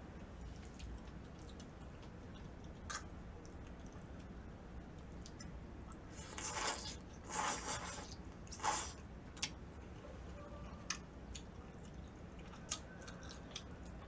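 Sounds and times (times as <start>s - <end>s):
mouth clicks while chewing: 0.5s - 4.4s, 10.8s - 14.0s
noodles being slurped: 6.1s - 9.0s.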